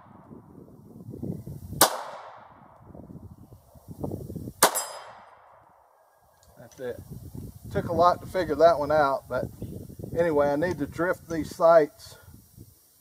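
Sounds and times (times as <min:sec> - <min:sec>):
pistol shots: 0:01.8 - 0:02.6, 0:04.6 - 0:05.8
high ring of steel target: 0:04.6 - 0:05.7.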